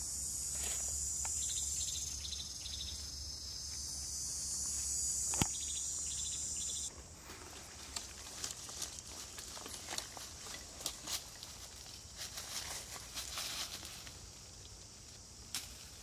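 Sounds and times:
insect chirps: 0.0s - 16.0s
insects buzzing: 0.0s - 16.0s
sharp click: 5.3s - 5.6s
scattered ticks and rustles: 7.4s - 16.0s.

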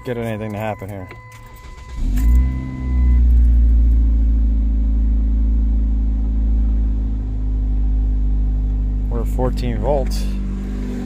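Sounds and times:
car engine starting and idling: 0.0s - 11.0s.

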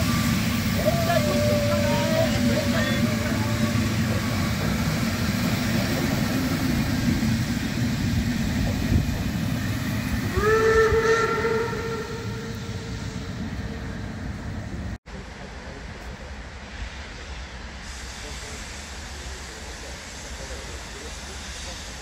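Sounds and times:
steam locomotive whistle: 0.0s - 5.0s, 9.6s - 13.8s
train wheels rumbling on rails: 0.0s - 22.0s.

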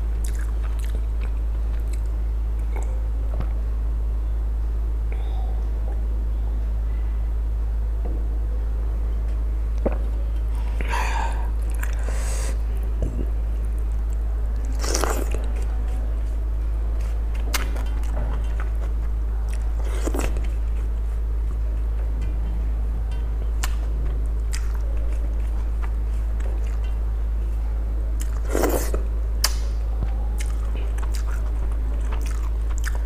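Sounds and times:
steady low hum: 0.0s - 33.0s
mouth chewing: 0.2s - 3.0s, 11.6s - 16.4s, 17.0s - 21.6s, 23.6s - 27.0s, 28.2s - 29.7s, 30.4s - 33.0s.

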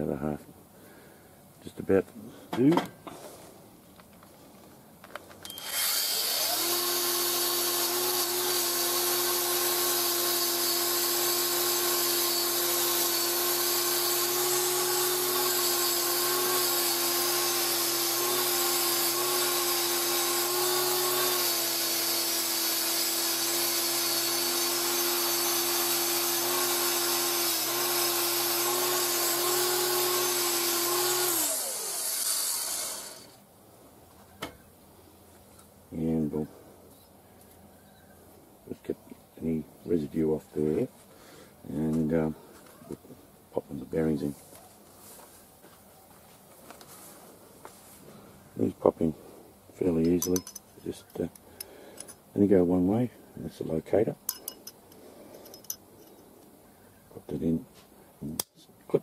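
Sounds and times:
angle grinder with wire wheel: 5.4s - 33.4s, 49.9s - 52.2s, 54.3s - 56.2s.

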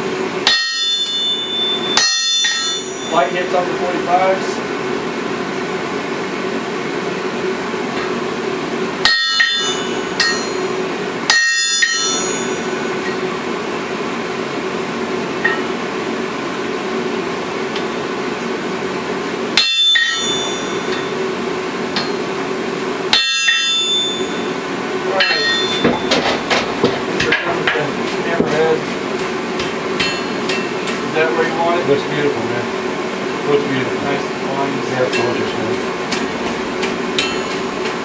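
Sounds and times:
steady hum: 0.0s - 38.0s
hammer striking iron on anvil: 0.4s - 3.3s, 9.0s - 13.3s, 15.4s - 15.8s, 19.6s - 21.2s, 21.9s - 22.3s, 23.1s - 31.1s, 35.1s - 38.0s.

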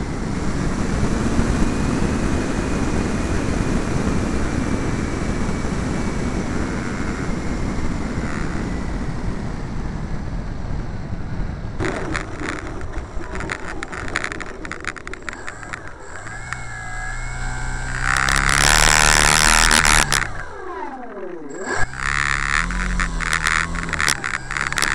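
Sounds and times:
electric motor whine: 0.0s - 24.9s
loud harsh rush: 11.8s - 24.9s.

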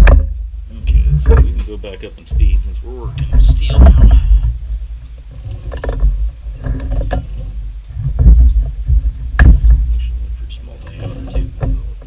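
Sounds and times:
clunks and knocks on metal lathe: 0.0s - 0.3s, 1.2s - 1.7s, 8.0s - 10.1s
low rumble: 0.0s - 12.0s.

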